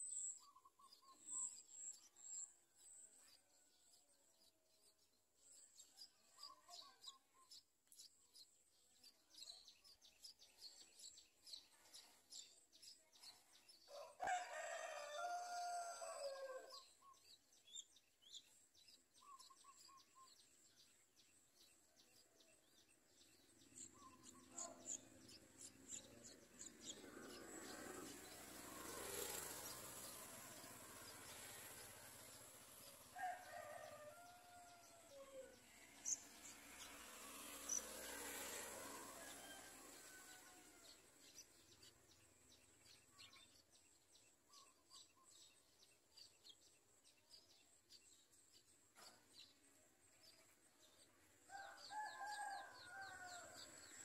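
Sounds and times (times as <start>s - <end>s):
rooster crowing: 13.9s - 16.8s, 33.2s - 35.6s, 38.8s - 40.9s, 51.5s - 53.8s.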